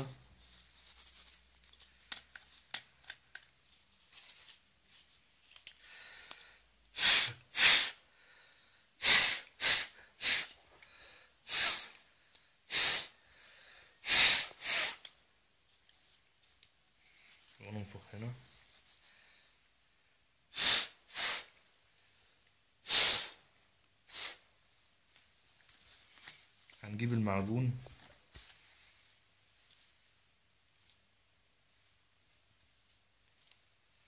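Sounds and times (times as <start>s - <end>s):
faint rustling and light clicks: 0.3s - 6.9s, 15.1s - 19.8s, 24.6s - 34.0s
sharp puffs of breath: 5.8s - 15.2s, 20.5s - 24.5s.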